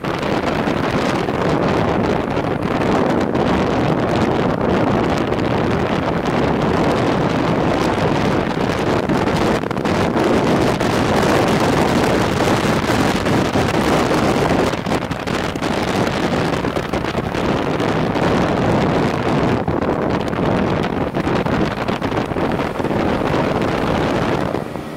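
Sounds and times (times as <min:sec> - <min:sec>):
motorcycle running: 0:00.0 - 0:24.9
wind buffeting microphone: 0:00.0 - 0:24.9.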